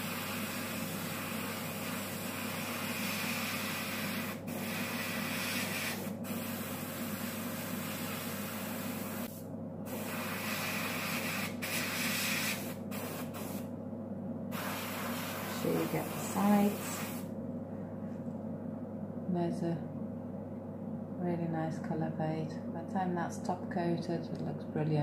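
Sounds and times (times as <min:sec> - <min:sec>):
airbrush hissing: 0:00.0 - 0:13.7, 0:14.5 - 0:17.3
constant low hum: 0:00.0 - 0:25.0.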